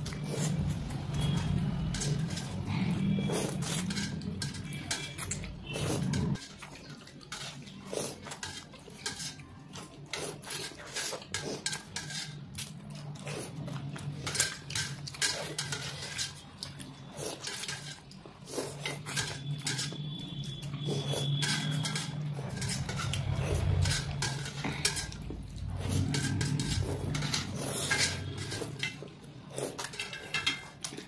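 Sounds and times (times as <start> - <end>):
noodles being slurped: 0.0 - 31.0
chopsticks clicking on steel plates: 21.3 - 31.0.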